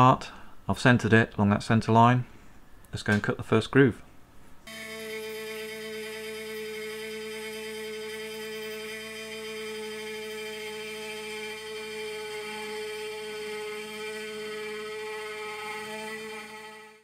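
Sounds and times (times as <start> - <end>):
end mill cutting metal: 4.7 - 17.0
machine spindle whine: 4.7 - 17.0.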